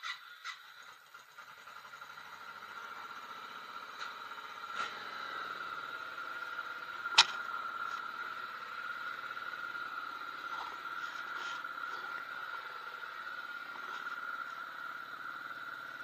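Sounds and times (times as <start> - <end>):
motorcycle engine idling: 0.0 - 16.0
sharp click: 7.1 - 7.4.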